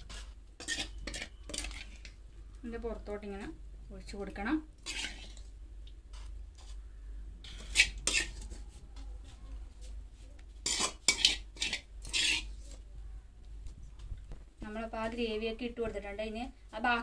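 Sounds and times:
spoon scraping and clinking dish: 0.0 - 2.2, 4.8 - 5.5, 7.4 - 8.6, 10.6 - 12.8.

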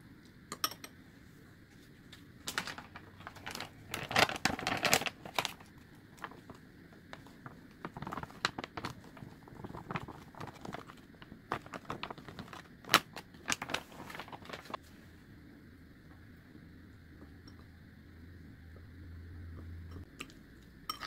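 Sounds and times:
paper bag crinkling: 2.4 - 6.6, 7.2 - 14.8.

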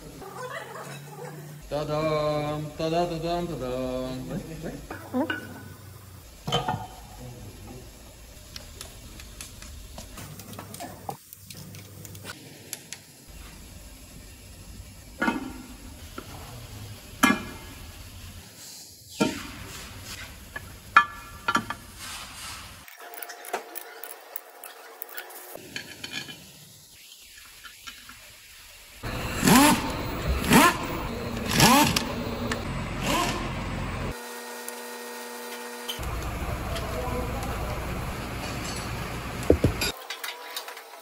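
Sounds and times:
power tool running bolts: 29.0 - 40.9.

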